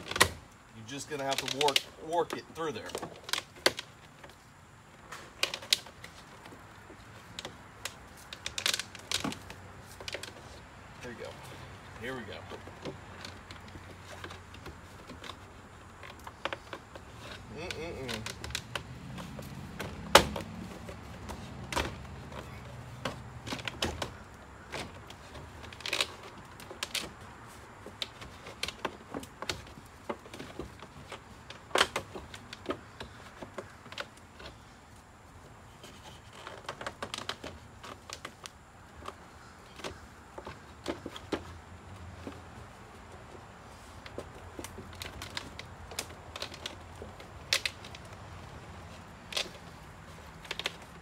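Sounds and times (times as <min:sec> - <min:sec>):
cable clicking and knocking: 0:11.8 - 0:34.6, 0:35.8 - 0:51.0.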